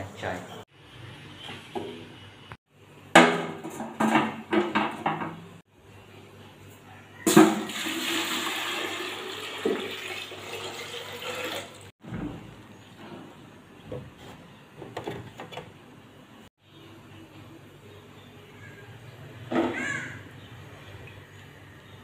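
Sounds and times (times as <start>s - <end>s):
water pouring into metal pot: 7.5s - 11.9s.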